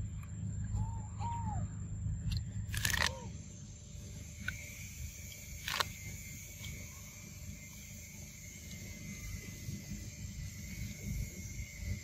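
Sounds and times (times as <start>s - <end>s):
steady low rumble: 0.0s - 12.0s
corn cob crunchy snaps: 2.7s - 3.2s.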